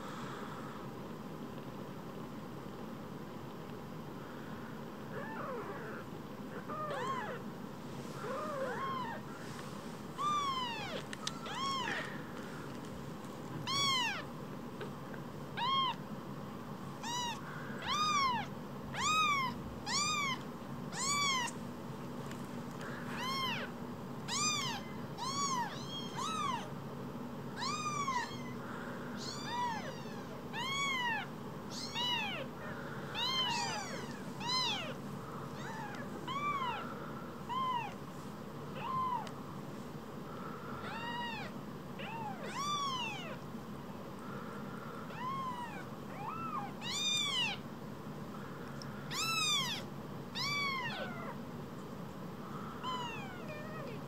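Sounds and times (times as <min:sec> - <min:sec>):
kitten mewing: 0:33.1 - 0:35.0.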